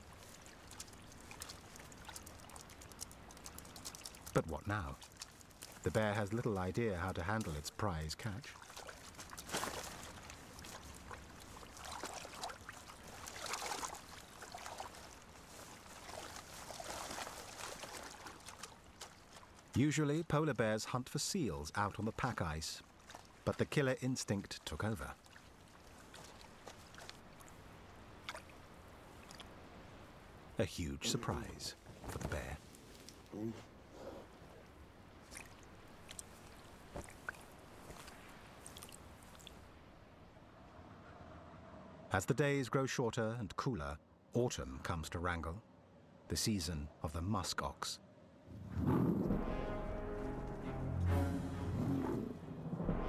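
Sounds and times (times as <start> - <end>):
bear chewing fish: 0.0 - 6.5
shallow water splashing: 0.0 - 19.9, 21.4 - 30.0, 35.1 - 39.7.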